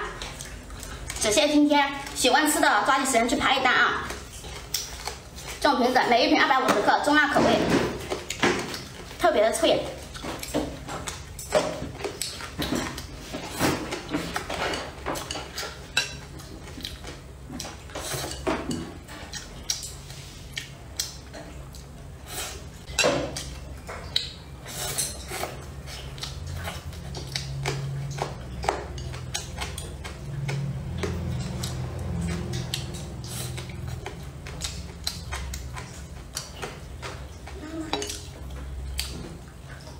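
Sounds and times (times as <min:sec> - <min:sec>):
noodles slurped and chewed: 0:24.0 - 0:39.9.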